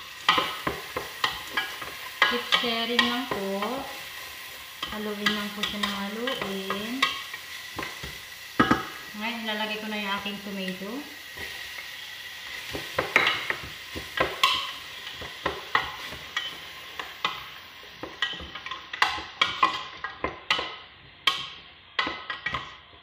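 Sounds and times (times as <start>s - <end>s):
soft sizzle: 0.0s - 23.0s
wooden spoon knocking on pot: 7.8s - 9.0s, 12.7s - 16.6s, 18.0s - 22.7s.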